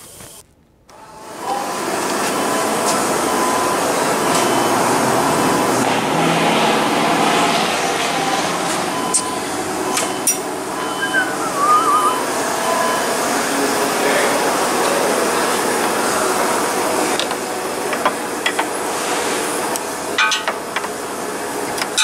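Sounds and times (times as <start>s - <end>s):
short wavering squeak: 10.0s - 13.1s.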